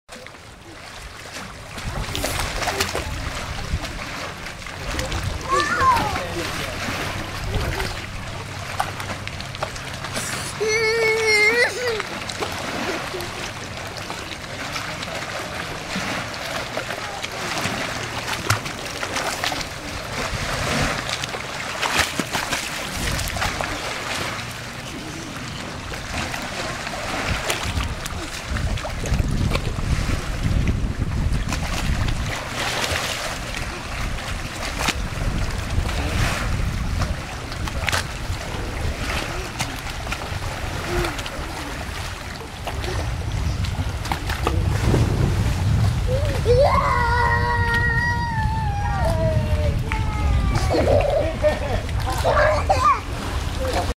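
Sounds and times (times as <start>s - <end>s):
water splashing: 0.1s - 53.9s
wind rumbling on microphone: 0.6s - 16.4s, 17.0s - 53.9s.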